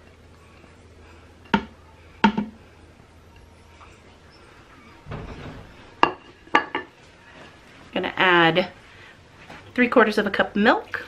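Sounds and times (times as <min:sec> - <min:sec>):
faint low hum: 0:00.0 - 0:11.0
spatula knocking on metal pot: 0:01.5 - 0:02.6.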